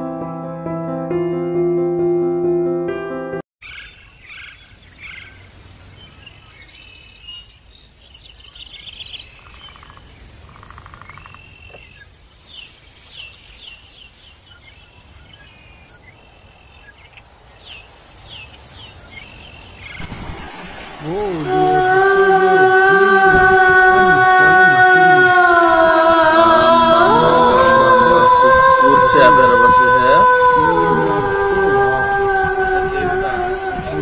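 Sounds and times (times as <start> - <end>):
birds chirping and calling: 3.6 - 5.4
outdoor background noise: 3.6 - 34.0.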